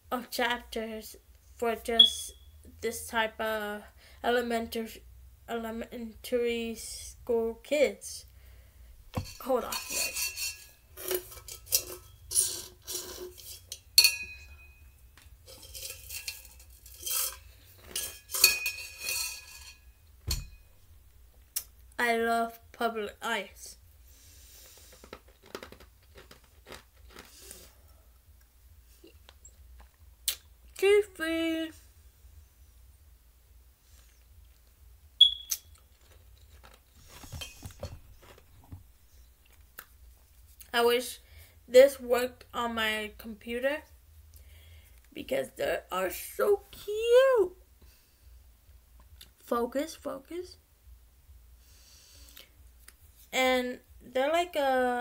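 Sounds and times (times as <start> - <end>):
high squeak-like tone: 2.0 - 2.6
bottle clinking and knocking: 20.3 - 20.7
rustling and light knocks: 36.4 - 39.2.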